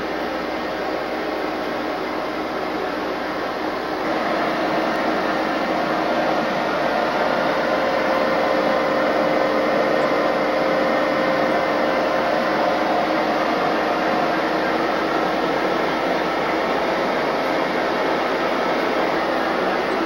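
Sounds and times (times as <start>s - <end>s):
faint steady hum: 0.0s - 20.0s
locomotive machinery drone: 0.0s - 20.0s.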